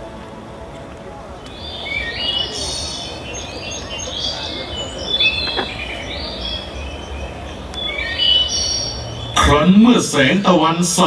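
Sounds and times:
recorded birdsong over loudspeakers: 0.4s - 11.0s.

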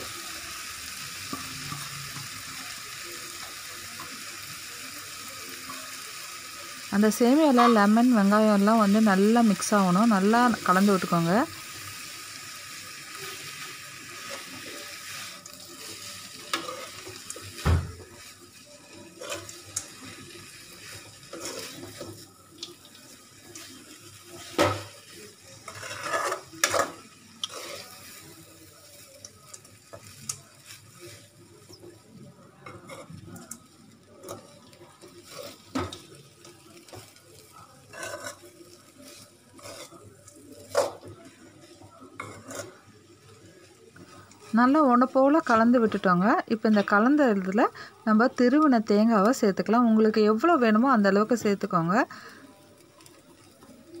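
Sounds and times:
metal spoon scraping metal pan: 25.6s - 27.9s, 37.9s - 38.5s, 42.2s - 42.8s.

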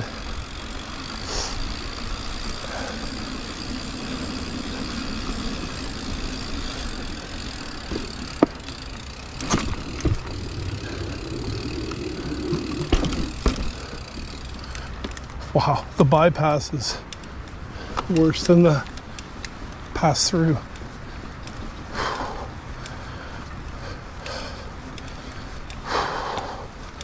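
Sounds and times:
train rumbling: 0.0s - 14.6s
sharp clicks and knocks: 7.8s - 8.7s, 9.4s - 15.4s.

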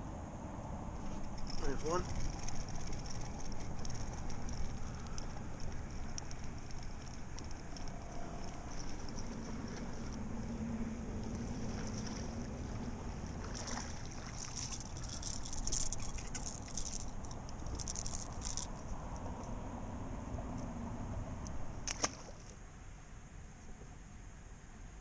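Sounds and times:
hiss of wind and water: 0.0s - 25.0s
water splashing: 1.2s - 18.7s, 21.8s - 22.6s.

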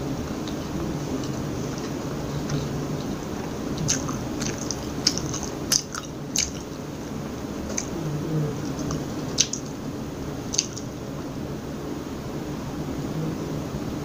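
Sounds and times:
steady low hum: 0.0s - 14.0s
chewing with wet clicks: 0.4s - 8.0s, 8.6s - 9.8s, 10.4s - 11.0s.

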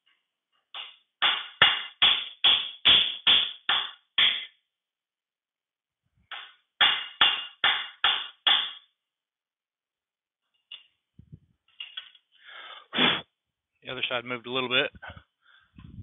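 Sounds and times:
hammer striking metal punch: 0.7s - 4.5s, 6.3s - 8.9s.

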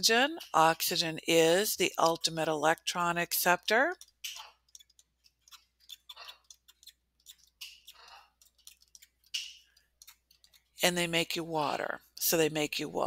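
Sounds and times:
stylus tapping on screen: 1.9s - 10.8s.

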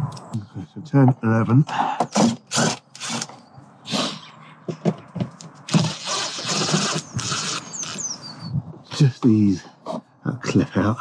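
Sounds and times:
impact driver running: 2.1s - 3.4s, 5.7s - 8.1s.

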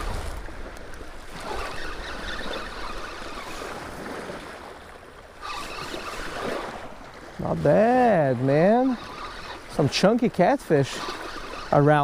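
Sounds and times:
wind buffeting microphone: 0.0s - 4.7s
small waves washing on shore: 0.0s - 12.0s.

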